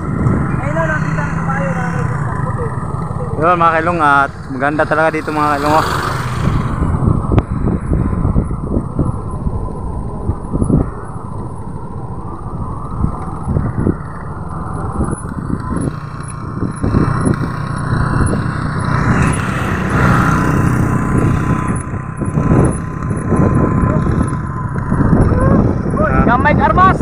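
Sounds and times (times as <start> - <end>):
motorcycle engine running: 0.0 - 27.0
wind buffeting the microphone: 0.0 - 27.0.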